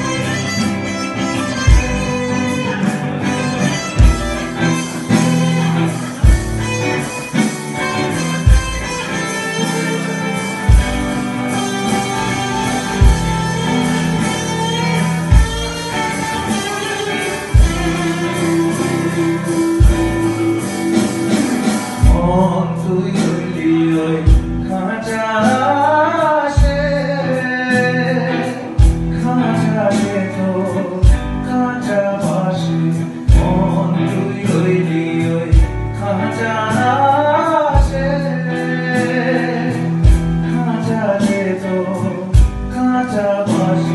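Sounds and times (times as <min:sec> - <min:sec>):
harmonica wailing: 0:00.0 - 0:22.0
live blues band playing: 0:00.0 - 0:43.9
loud drum hit: 0:02.8 - 0:06.8, 0:07.4 - 0:09.1, 0:10.5 - 0:22.6.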